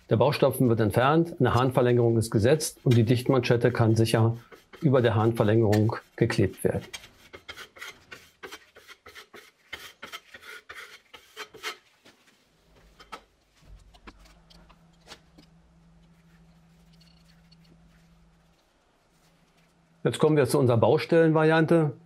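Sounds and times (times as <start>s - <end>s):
trowel scraping wall: 1.5s - 12.1s
faint low hum: 12.4s - 22.0s.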